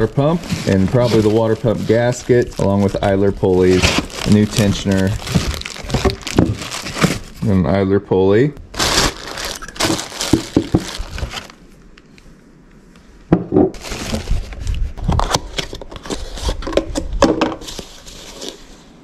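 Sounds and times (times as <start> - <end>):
plastic packaging crinkling: 0.0 - 7.5, 8.7 - 11.6, 13.8 - 16.6.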